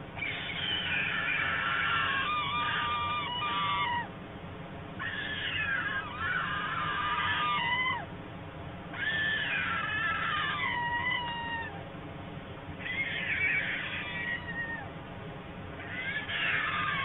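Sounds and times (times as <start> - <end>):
young storks calling: 0.2 - 4.1, 5.0 - 8.1, 9.0 - 11.8, 12.8 - 14.9, 15.8 - 17.0.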